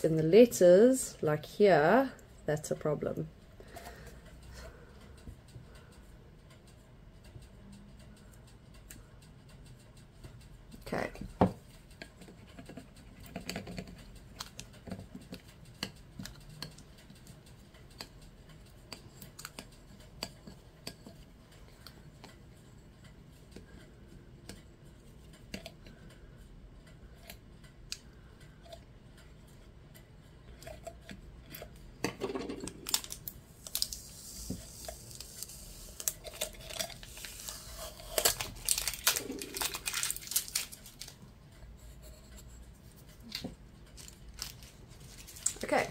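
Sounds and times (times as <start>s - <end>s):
plastic tape crinkling: 32.6s - 41.2s, 43.2s - 45.9s.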